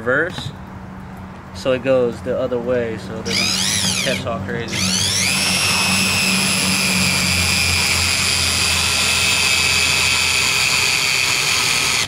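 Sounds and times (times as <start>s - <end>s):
cordless drill motor whining: 3.3s - 12.0s.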